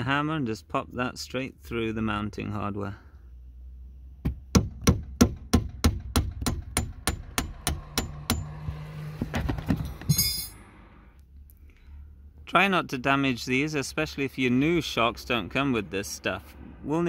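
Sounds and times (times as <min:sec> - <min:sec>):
hammer tapping metal shaft: 0:04.2 - 0:08.5.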